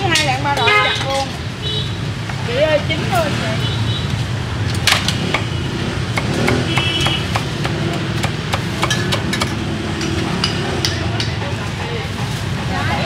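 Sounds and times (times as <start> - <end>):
street traffic rumble: 0.0 - 13.0
cleaver chopping meat: 4.9 - 11.4.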